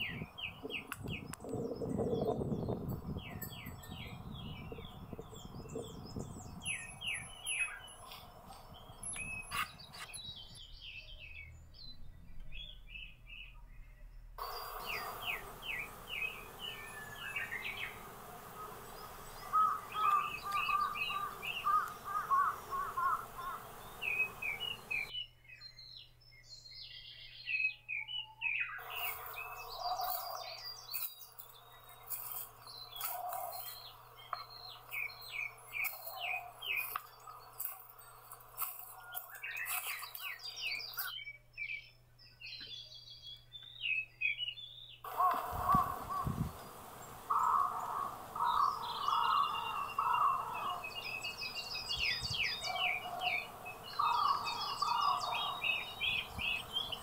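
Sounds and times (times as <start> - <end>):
songbirds chirping and singing: 0.0 - 57.0
lower bird call: 14.4 - 25.1, 45.0 - 57.0
outdoor hiss: 14.4 - 25.1, 28.8 - 40.9, 45.1 - 57.0.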